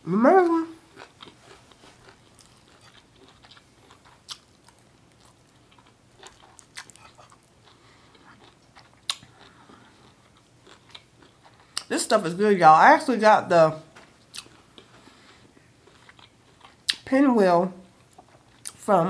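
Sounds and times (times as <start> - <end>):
person chewing: 0.4 - 11.9, 14.2 - 17.0, 18.0 - 18.9.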